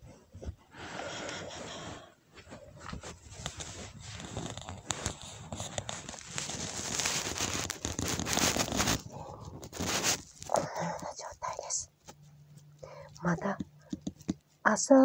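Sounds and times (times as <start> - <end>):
plastic crackling and rustling: 2.5 - 14.4.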